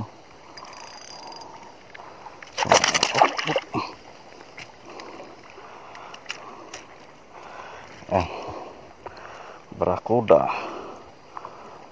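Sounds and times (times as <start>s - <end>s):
water lapping: 1.2s - 9.6s
fish splashing at water surface: 2.4s - 3.9s
faint clicks: 4.4s - 7.2s.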